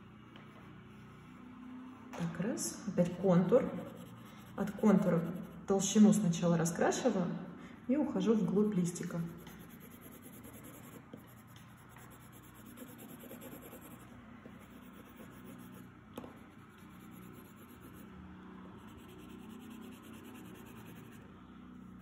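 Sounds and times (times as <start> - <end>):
pencil scratching on paper: 3.0 - 5.7, 9.0 - 15.9, 16.6 - 18.1, 18.8 - 21.2.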